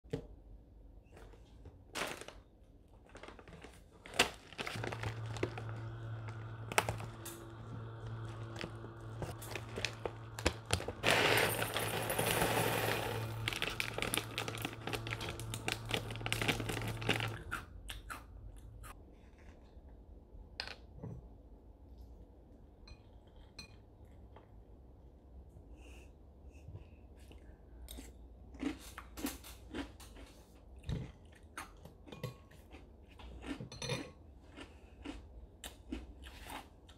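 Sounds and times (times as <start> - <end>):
plastic bag crinkling: 1.9 - 17.6
cereal pouring into ceramic bowl: 4.6 - 17.5.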